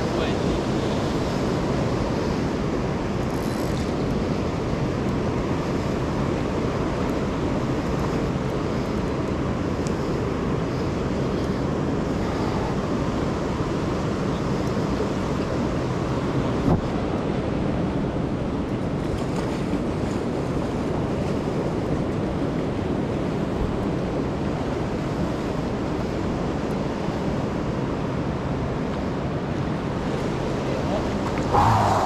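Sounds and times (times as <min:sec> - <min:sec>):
wind noise on microphone: 0:00.0 - 0:32.0
river current rushing: 0:27.8 - 0:32.0.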